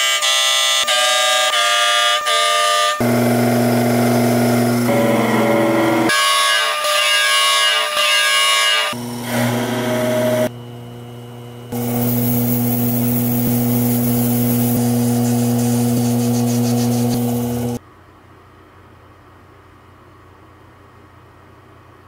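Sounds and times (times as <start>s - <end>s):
lathe motor hum: 3.0s - 6.1s, 8.9s - 17.8s
tool cutting brass: 3.0s - 6.3s, 8.6s - 10.5s, 11.7s - 17.8s.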